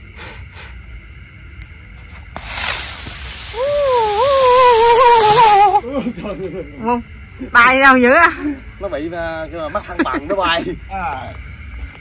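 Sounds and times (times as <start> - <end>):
firework hissing: 2.2 - 5.9
firework whistle wobbling in pitch: 3.5 - 5.8.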